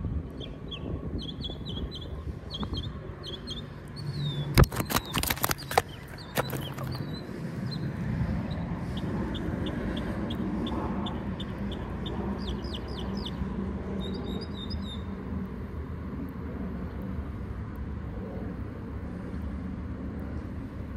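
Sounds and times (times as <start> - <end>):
steady low rumble: 5.6 - 20.9.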